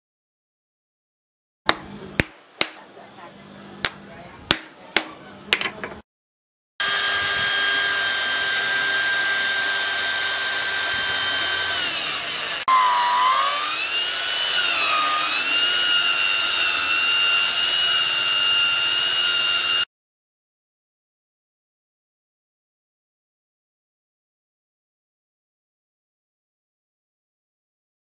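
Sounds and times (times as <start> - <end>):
electric drill whining: 6.8 - 19.9.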